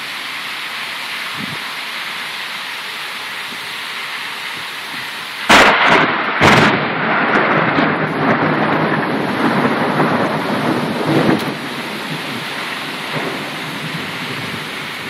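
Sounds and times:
heavy rain: 0.0 - 15.0
thunder cracks and rumbling: 5.5 - 15.0.

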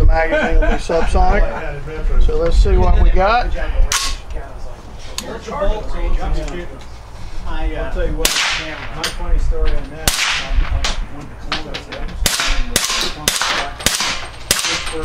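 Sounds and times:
suppressed rifle shots: 8.2 - 9.1, 10.0 - 11.0, 12.2 - 14.9.

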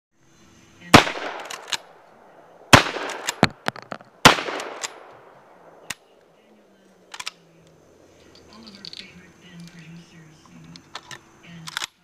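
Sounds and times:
shotgun blasts with echo: 0.9 - 6.1
small sharp cracks: 1.0 - 6.3, 7.1 - 9.8, 10.7 - 12.0.

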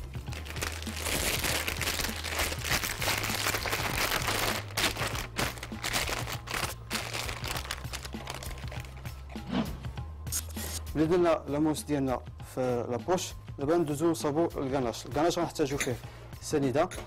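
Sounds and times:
plastic bag crinkling: 0.2 - 9.0.

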